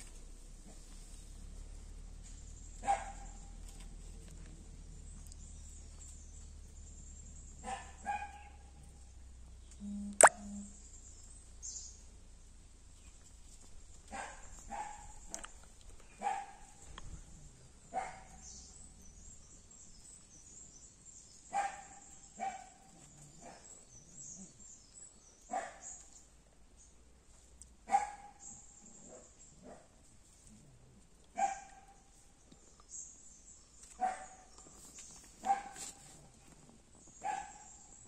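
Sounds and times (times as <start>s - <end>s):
dog barking: 2.8s - 3.5s, 7.6s - 8.6s, 14.1s - 15.2s, 16.2s - 16.8s, 17.9s - 18.4s, 21.5s - 22.8s, 25.5s - 26.0s, 27.9s - 28.5s, 31.3s - 32.0s, 34.0s - 34.5s, 35.4s - 36.0s, 37.2s - 37.8s.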